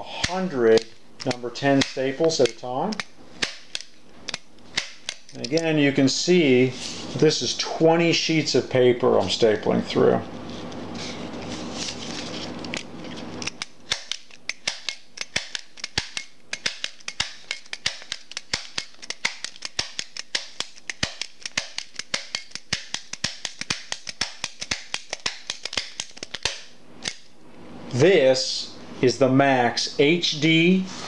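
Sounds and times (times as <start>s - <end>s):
stapler snapping: 0.2s - 5.7s, 12.7s - 27.3s.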